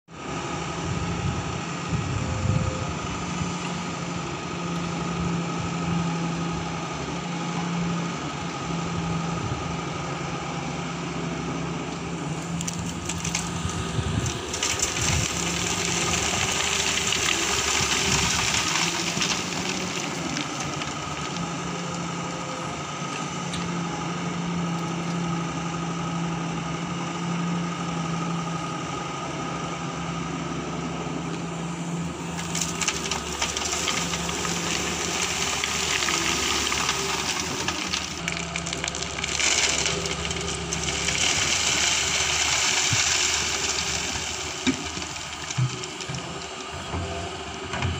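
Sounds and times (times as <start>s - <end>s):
excavator diesel engine running: 0.1s - 47.9s
stones scraping in bucket: 14.2s - 21.5s, 32.4s - 46.3s.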